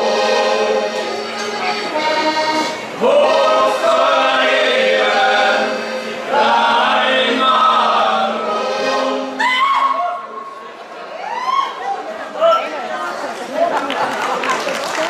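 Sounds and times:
group singing folk song: 0.0s - 9.5s.

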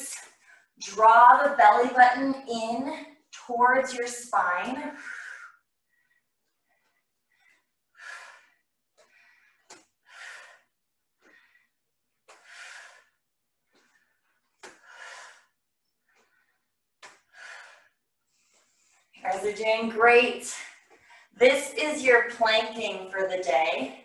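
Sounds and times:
woman breathing hard: 4.9s - 19.2s.

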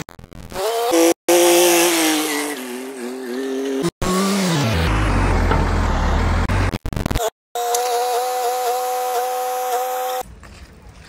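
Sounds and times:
diesel engines running: 4.0s - 6.8s.

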